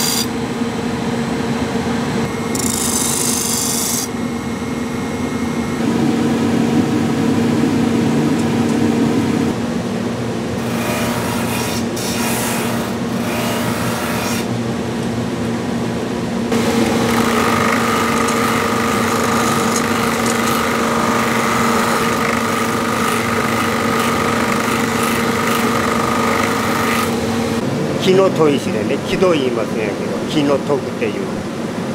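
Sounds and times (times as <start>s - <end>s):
knife blade grinding on wheel: 0.0s - 0.3s, 2.3s - 4.2s, 16.5s - 27.3s
grinder motor hum: 0.0s - 9.6s, 16.5s - 27.7s
steady high whine: 0.0s - 10.7s, 14.5s - 31.9s.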